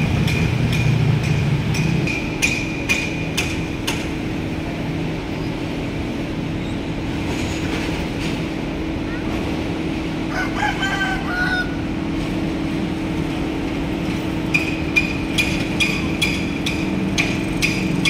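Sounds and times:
metallic knocking: 0:00.2 - 0:04.1, 0:14.5 - 0:18.0
rooster crowing: 0:10.3 - 0:11.9.

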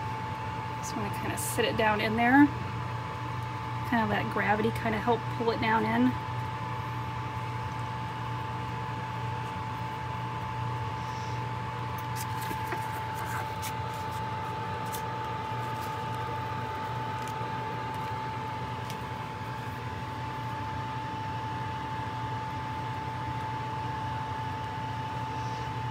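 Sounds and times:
constant whine: 0:00.0 - 0:25.9
oven fan whirring: 0:00.0 - 0:25.9
pastry paper crinkling: 0:12.0 - 0:19.8.

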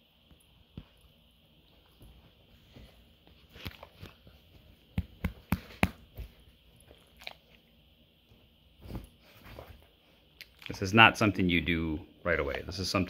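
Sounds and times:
soft scuffs: 0:08.8 - 0:10.0.

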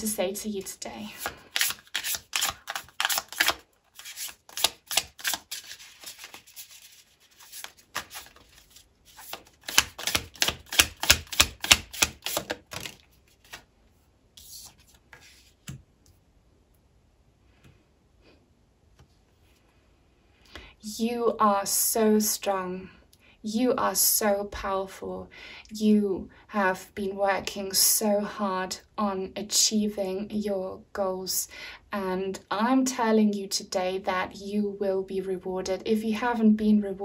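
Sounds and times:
cards being shuffled: 0:01.2 - 0:13.7, 0:14.4 - 0:15.8.

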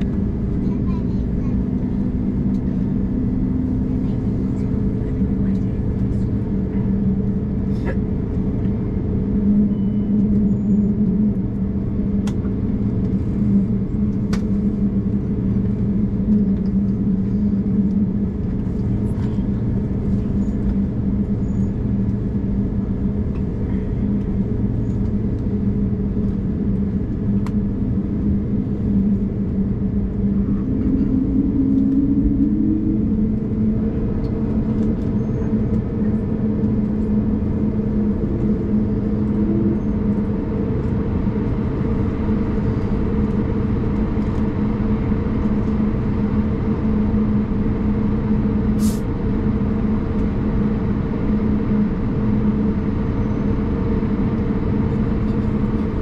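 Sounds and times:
jet engine drone: 0:00.0 - 0:56.0
airflow noise: 0:17.0 - 0:56.0.

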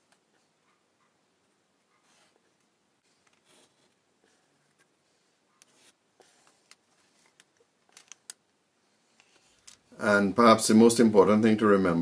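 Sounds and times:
pencil scratching on wood: 0:02.0 - 0:02.4, 0:03.3 - 0:04.9, 0:05.5 - 0:07.3.

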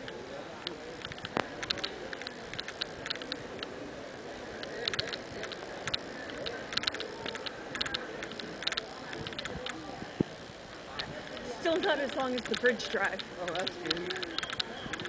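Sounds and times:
murmur of crowd chatter: 0:00.0 - 0:15.0.

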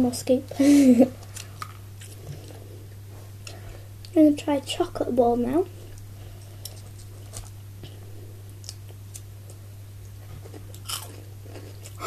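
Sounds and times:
person chewing wafer: 0:01.2 - 0:03.6, 0:05.9 - 0:12.0.

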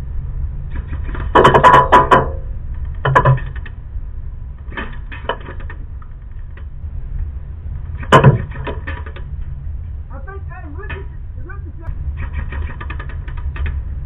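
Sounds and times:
low steady rumble: 0:00.0 - 0:14.0.

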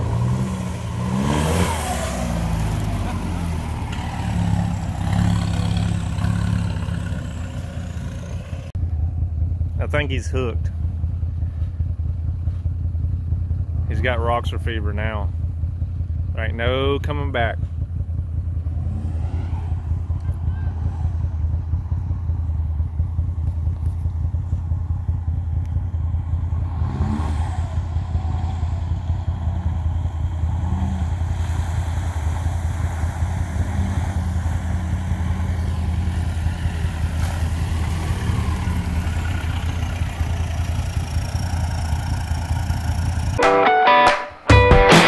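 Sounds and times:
vehicle driving through puddle: 0:00.0 - 0:08.4, 0:29.8 - 0:42.2
low engine rumble: 0:00.0 - 0:43.4.

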